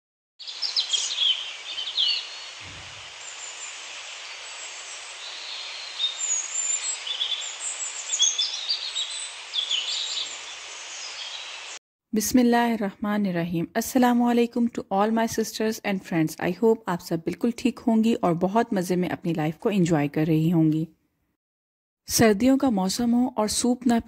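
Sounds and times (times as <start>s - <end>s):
birds chirping: 0.4s - 11.8s
steady background hiss: 0.5s - 11.8s
low thud: 2.6s - 3.0s.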